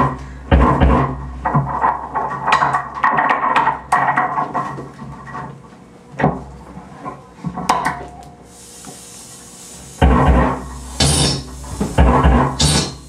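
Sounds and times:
steady electrical hum: 0:00.0 - 0:13.0
clattering scraping and clicking: 0:00.5 - 0:05.6.

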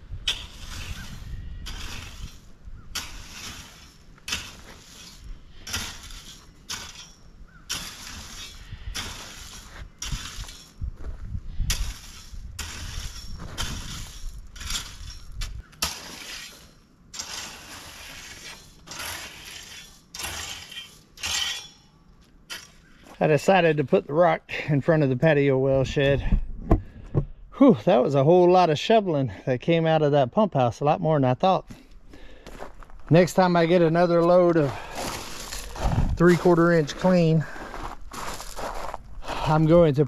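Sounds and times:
stones rattling: 0:00.3 - 0:11.1
shovel scraping loose rock: 0:00.3 - 0:24.0, 0:32.5 - 0:39.8.

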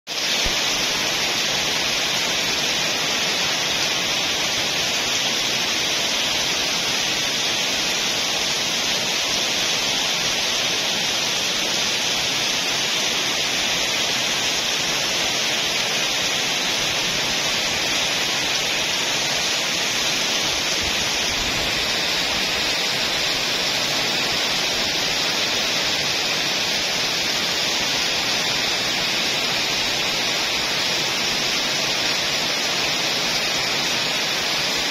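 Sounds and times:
heavy rain on leaves: 0:00.1 - 0:34.9.

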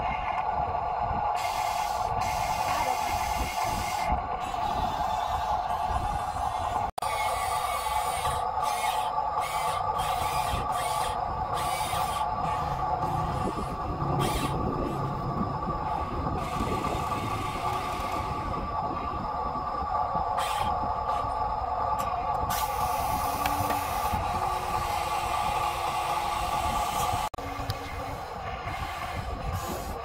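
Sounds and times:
electric motor whine: 0:09.0 - 0:19.5.

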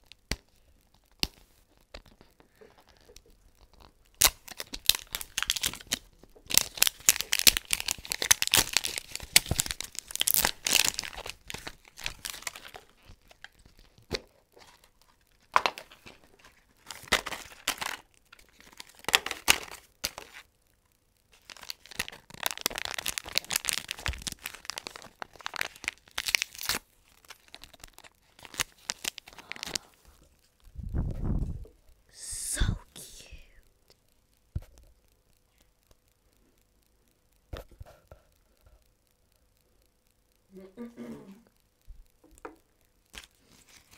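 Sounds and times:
plastic wrappers tearing and crinkling: 0:00.0 - 0:20.5, 0:21.3 - 0:30.7, 0:43.1 - 0:43.9.

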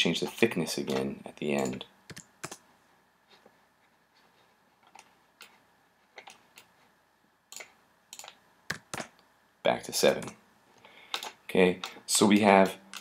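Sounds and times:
computer mouse clicks: 0:01.6 - 0:02.6, 0:07.5 - 0:09.3, 0:11.1 - 0:13.0.

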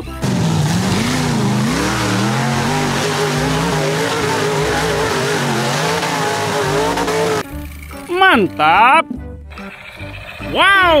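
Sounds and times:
buggy engine revving hard: 0:00.0 - 0:07.5.

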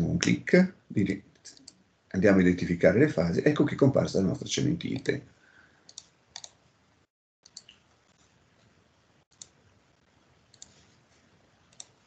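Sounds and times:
computer mouse clicks: 0:01.5 - 0:01.8, 0:05.9 - 0:06.6, 0:07.4 - 0:08.7, 0:09.3 - 0:09.6, 0:10.5 - 0:10.9, 0:11.7 - 0:12.0.

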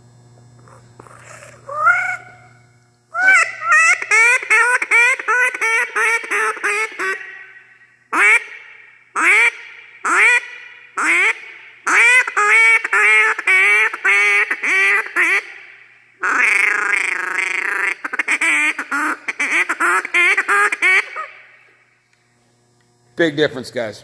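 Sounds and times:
duck call quacks: 0:01.2 - 0:02.4, 0:03.2 - 0:07.5, 0:08.1 - 0:15.6, 0:16.2 - 0:21.4.

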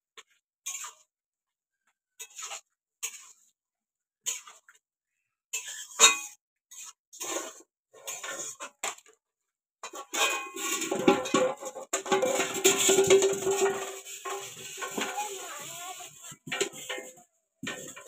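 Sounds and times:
metal spatula scraping wok: 0:00.6 - 0:01.1, 0:02.2 - 0:03.6, 0:04.2 - 0:04.8, 0:05.5 - 0:08.8, 0:09.8 - 0:18.0.

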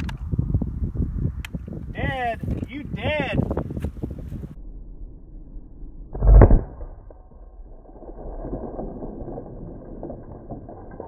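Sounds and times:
rifle shot: 0:06.2 - 0:07.0.

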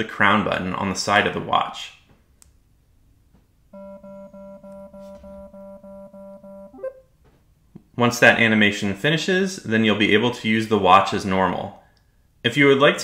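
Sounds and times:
pulsing low buzzing tone: 0:03.8 - 0:07.0.

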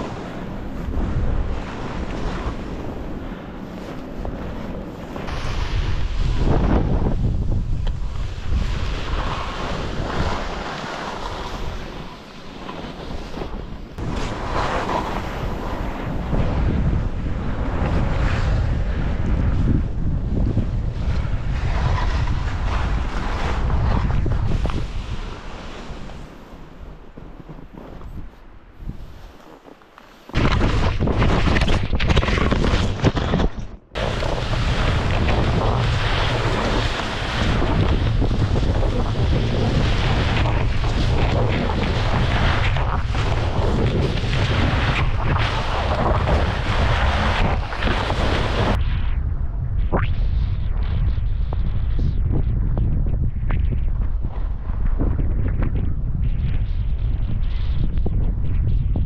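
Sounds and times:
skis hissing through snow: 0:00.0 - 0:16.6, 0:21.6 - 0:30.8, 0:34.0 - 0:48.8
wind rushing over microphone: 0:00.0 - 0:59.0.

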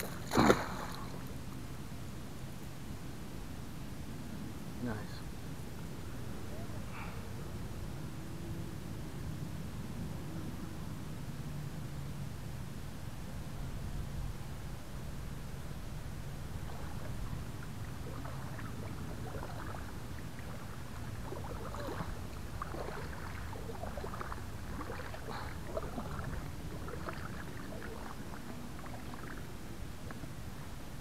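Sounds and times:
water lapping against a hull: 0:00.0 - 0:01.6, 0:16.4 - 0:30.3.

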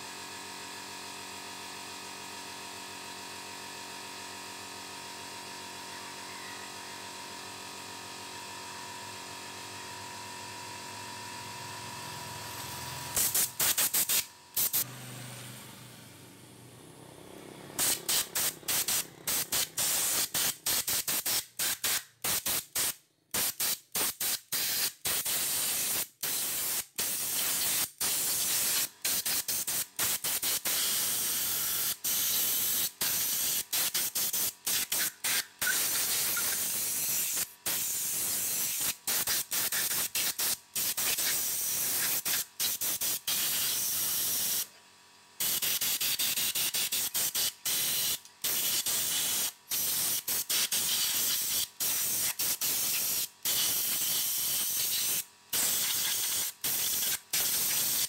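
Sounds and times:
air blow gun hissing: 0:12.2 - 0:16.0, 0:17.8 - 0:44.7, 0:45.4 - 0:58.0.

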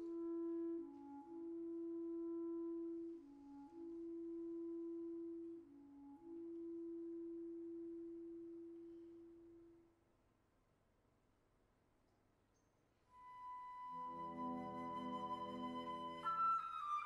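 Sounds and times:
wind instrument holding a note: 0:13.2 - 0:17.0.

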